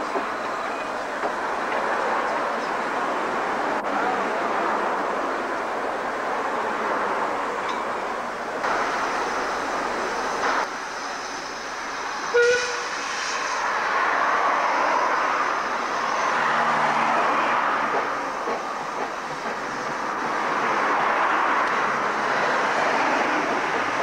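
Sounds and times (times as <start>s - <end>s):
steam locomotive running: 0.0s - 24.0s
train coaches rolling past: 0.0s - 24.0s
hiss of steam: 8.6s - 24.0s
short whistle toot: 12.4s - 12.9s.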